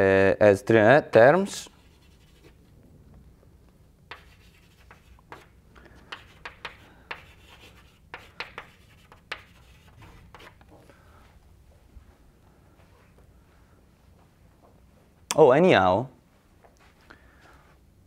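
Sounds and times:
chalk scratching on blackboard: 0:01.6 - 0:02.6, 0:04.1 - 0:10.6.

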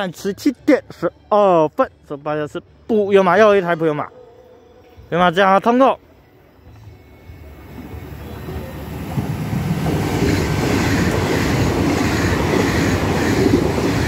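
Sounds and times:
train passing at speed: 0:07.0 - 0:14.0.

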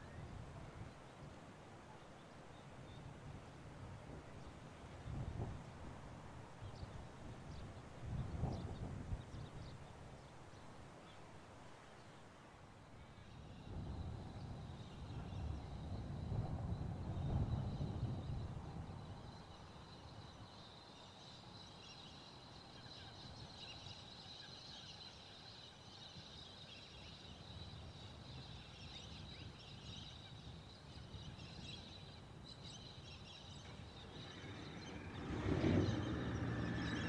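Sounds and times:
birds chirping: 0:17.2 - 0:37.0.

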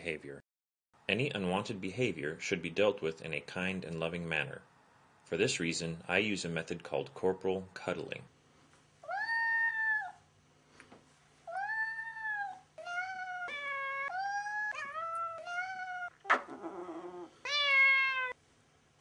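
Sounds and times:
cat meowing: 0:09.0 - 0:10.2, 0:11.5 - 0:18.4.

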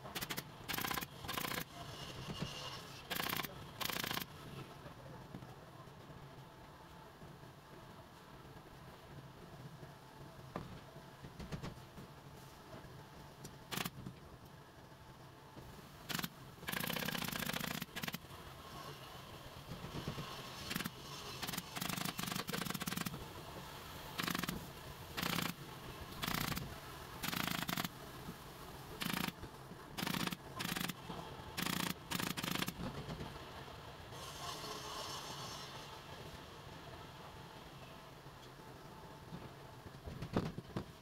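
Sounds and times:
pneumatic staple gun firing: 0:00.2 - 0:01.7, 0:03.1 - 0:04.3, 0:13.7 - 0:14.0, 0:16.1 - 0:18.2, 0:20.6 - 0:23.1, 0:24.2 - 0:24.6, 0:25.2 - 0:25.6, 0:26.2 - 0:27.9, 0:29.0 - 0:29.3, 0:30.0 - 0:31.0, 0:31.6 - 0:32.8.

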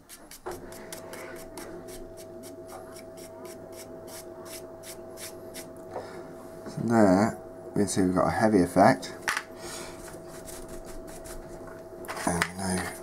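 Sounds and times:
paintbrush scratching on plastic: 0:00.0 - 0:05.4, 0:10.2 - 0:11.6
steady hum: 0:00.0 - 0:13.0.

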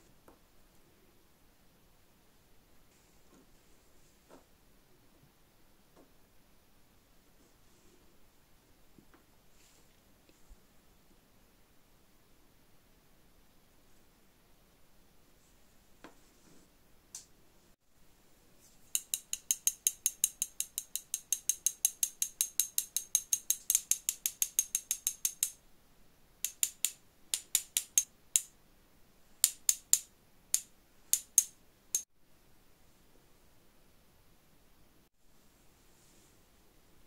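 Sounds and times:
sifter ratchet clicking: 0:18.9 - 0:25.6, 0:26.4 - 0:28.5, 0:29.4 - 0:32.0.

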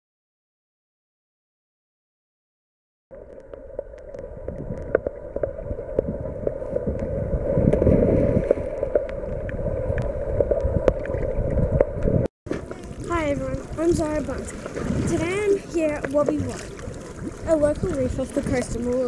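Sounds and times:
water sloshing and gurgling: 0:03.1 - 0:19.0
water splashes and slaps: 0:04.0 - 0:19.0.

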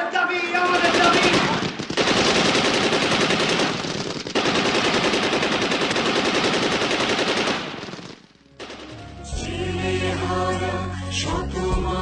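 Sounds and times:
automatic machine-gun fire: 0:00.5 - 0:09.1.

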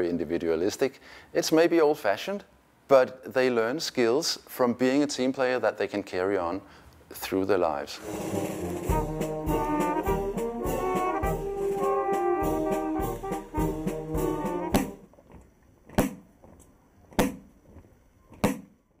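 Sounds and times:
side drum strokes: 0:08.0 - 0:15.0
marching brass band playing: 0:08.0 - 0:15.1.

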